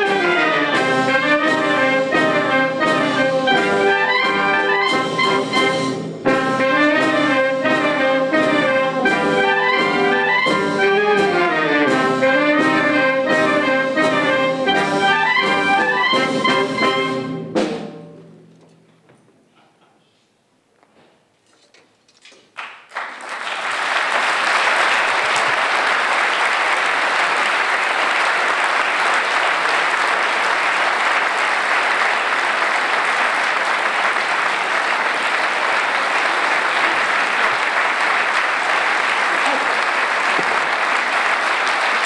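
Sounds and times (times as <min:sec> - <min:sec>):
audience applause: 0:22.6 - 0:42.0.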